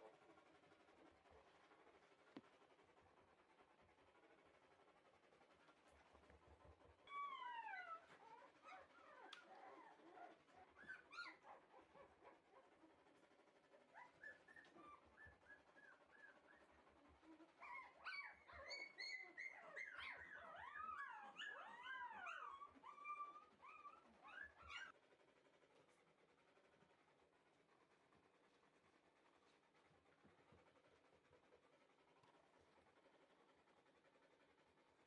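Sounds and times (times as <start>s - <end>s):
puppies whining and whimpering: 7.0s - 12.6s, 13.9s - 25.0s.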